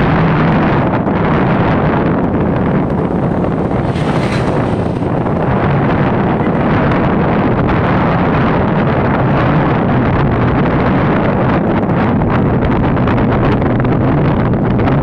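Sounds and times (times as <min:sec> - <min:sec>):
vehicle hum: 0:00.0 - 0:15.0
wind noise on microphone: 0:00.0 - 0:15.0.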